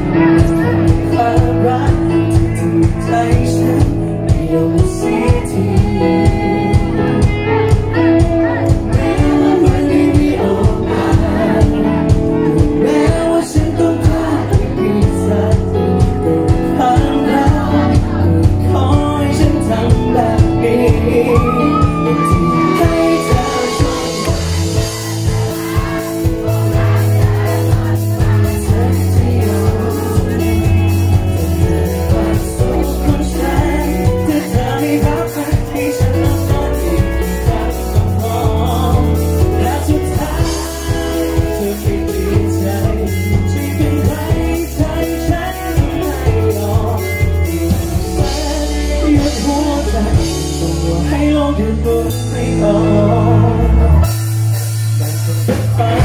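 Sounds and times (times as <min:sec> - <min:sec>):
man singing live: 0:00.0 - 0:56.0
pop song through a pa: 0:00.0 - 0:56.0.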